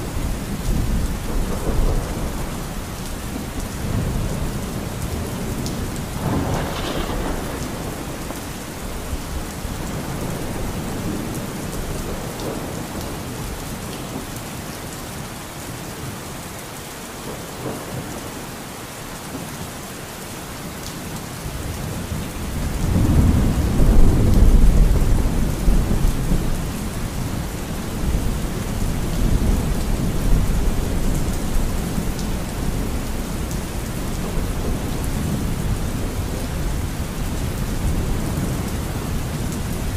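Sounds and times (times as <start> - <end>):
steady rain: 0.0 - 39.9
low roll of thunder: 0.3 - 13.6, 21.6 - 39.9.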